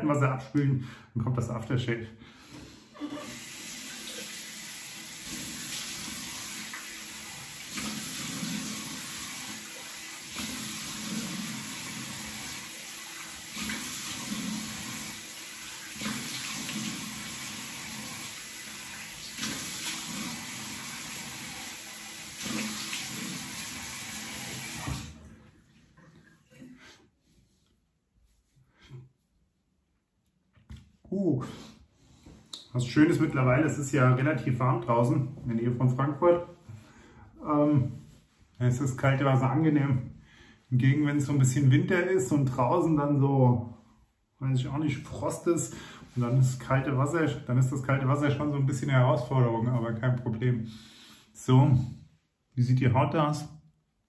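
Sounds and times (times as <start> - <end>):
tap running into a sink: 22.3 - 25.2
water splashed onto face: 22.4 - 23.9.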